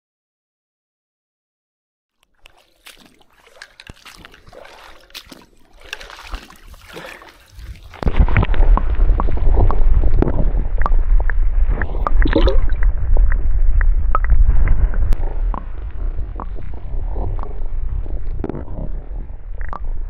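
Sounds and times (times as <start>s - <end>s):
clicks and knocks underwater: 2.2s - 20.0s
muffled underwater water gurgle: 2.4s - 20.0s.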